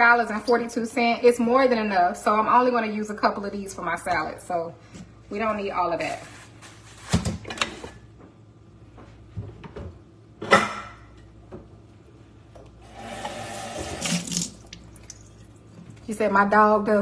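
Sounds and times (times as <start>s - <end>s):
plastic bag rustling: 6.0s - 7.3s
kitchen clatter and knocks: 9.4s - 11.7s.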